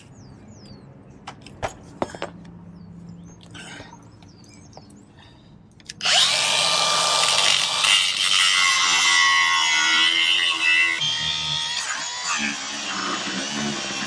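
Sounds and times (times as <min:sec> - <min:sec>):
angle grinder cutting metal: 0:06.0 - 0:14.0.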